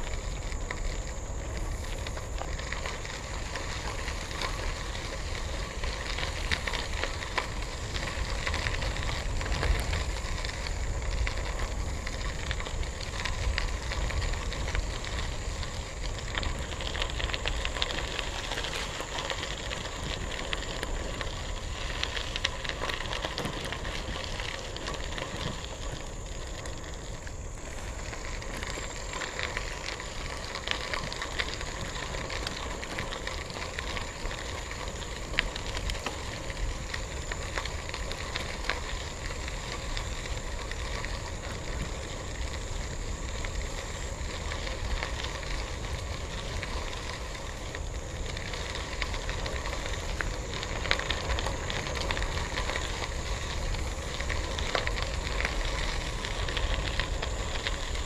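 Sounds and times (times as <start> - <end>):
bicycle tyres crunching on gravel: 0.0 - 58.0.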